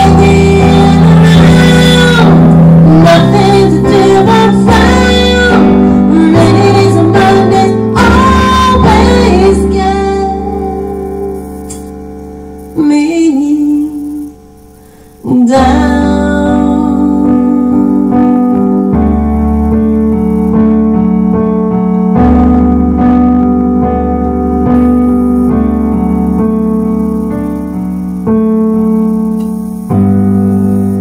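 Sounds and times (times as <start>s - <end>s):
woman singing a ballad: 0.0s - 11.9s, 12.8s - 14.5s, 15.2s - 18.9s
keyboard piano chords: 0.0s - 31.0s.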